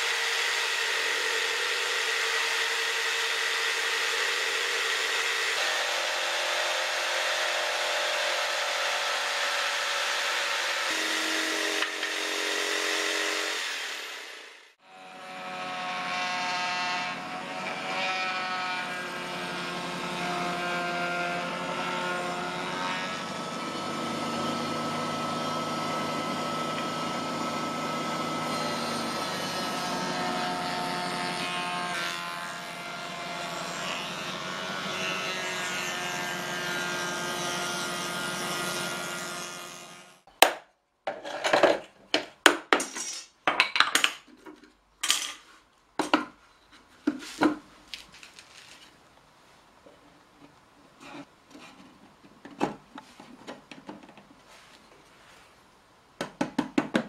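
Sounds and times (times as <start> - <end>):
bench power tool running: 0.0 - 40.2
wooden knocks and clatters: 51.5 - 54.4.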